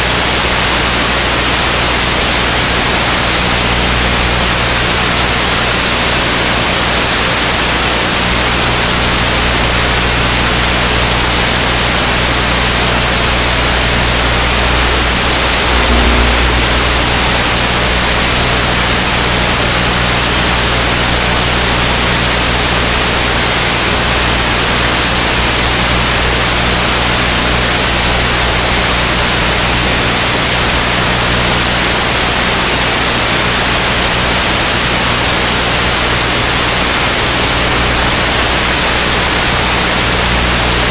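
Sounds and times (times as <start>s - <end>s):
loud static hiss: 0.0s - 40.9s
faint low hum: 9.4s - 20.3s.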